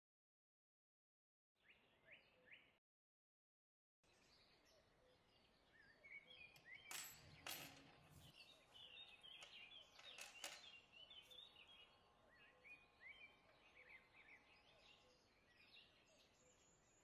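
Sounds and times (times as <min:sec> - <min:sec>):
small birds chirping: 0:04.1 - 0:17.0.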